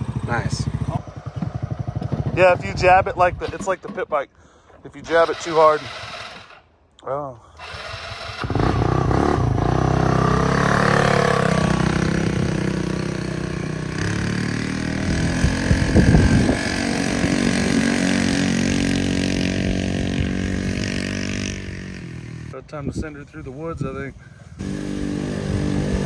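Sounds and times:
small engine revving: 5.0 - 6.6, 7.6 - 22.6, 24.6 - 26.0.

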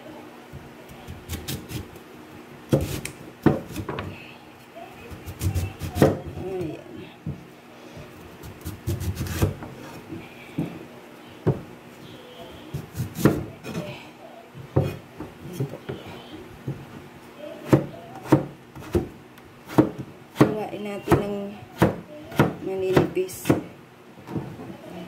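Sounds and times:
knife slicing sweet potato: 2.7 - 3.9, 8.5 - 9.6.

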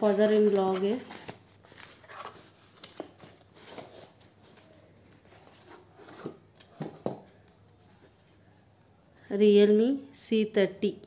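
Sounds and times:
cardboard rustling and scraping: 0.0 - 8.3.

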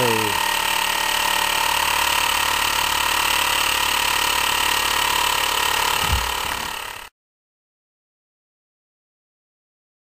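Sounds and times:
engine running with whine: 0.0 - 7.1.

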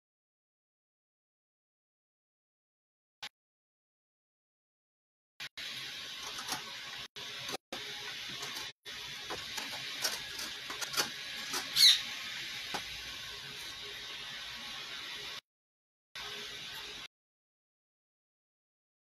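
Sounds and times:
hand tools clicking and tapping: 9.3 - 11.8
short high squeak: 11.7 - 12.1.

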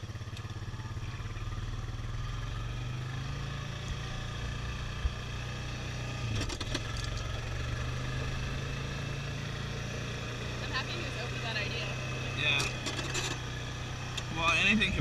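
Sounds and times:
quad engine running: 0.0 - 15.0
clatter of rattles: 6.3 - 7.2, 12.5 - 13.4.

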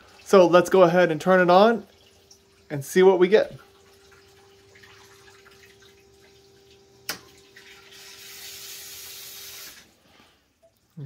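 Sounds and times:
cooling fan hiss: 0.0 - 10.1
faint steady hum: 0.0 - 11.0.

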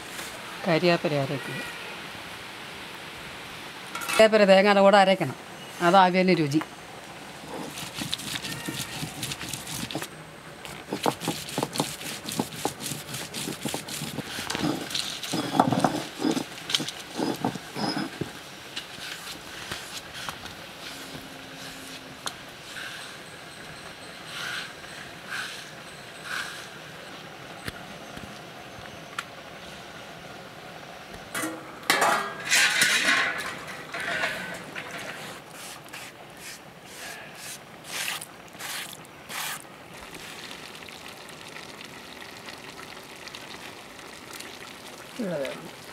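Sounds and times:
stone roller grinding on stone slab: 7.4 - 10.1, 10.7 - 18.4
metal plate scraping and clinking: 12.4 - 18.3, 31.4 - 35.4.

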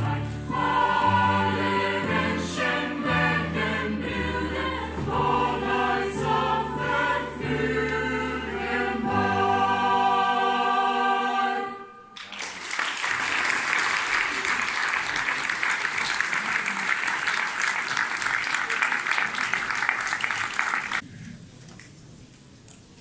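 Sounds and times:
mixed choir singing: 0.0 - 12.2.

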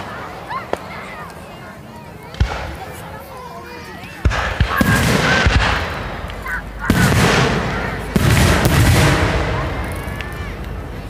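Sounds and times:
fireworks bursting with echoing bangs: 2.2 - 3.2, 4.1 - 11.0.

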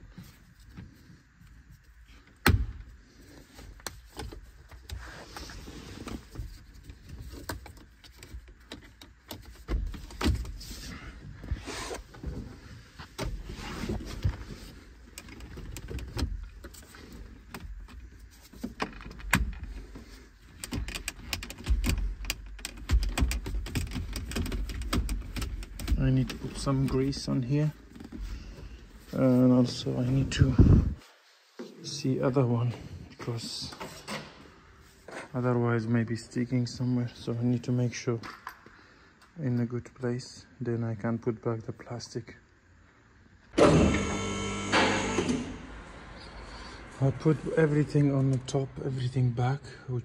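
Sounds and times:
plastic and metal parts clicking: 20.5 - 26.4.

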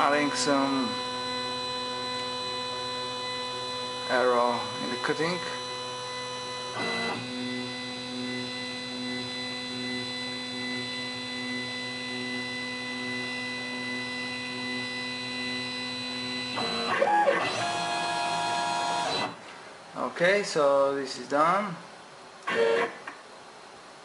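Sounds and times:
stepper motors whining: 0.0 - 19.4.

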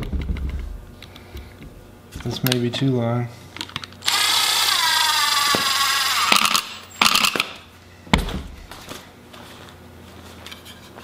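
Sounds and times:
impact driver driving screw into wood: 4.0 - 7.6.

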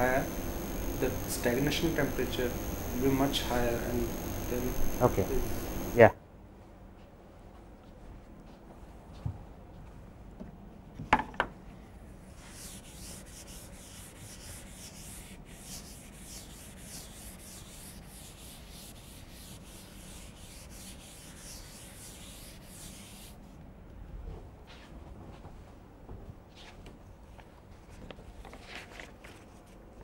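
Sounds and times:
duster rubbing chalkboard: 12.4 - 23.4.

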